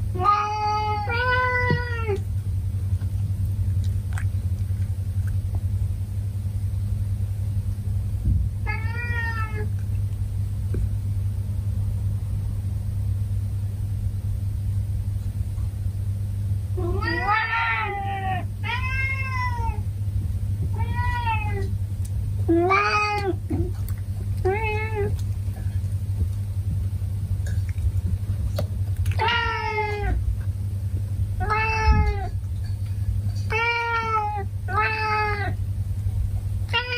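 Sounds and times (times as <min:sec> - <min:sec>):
steady low hum: 0:00.0 - 0:36.9
cat meowing: 0:00.2 - 0:02.2, 0:08.6 - 0:09.7, 0:16.8 - 0:19.8, 0:20.7 - 0:21.7, 0:22.5 - 0:23.8, 0:24.4 - 0:25.2, 0:29.1 - 0:30.2, 0:31.4 - 0:32.4, 0:33.5 - 0:35.6, 0:36.7 - 0:36.9.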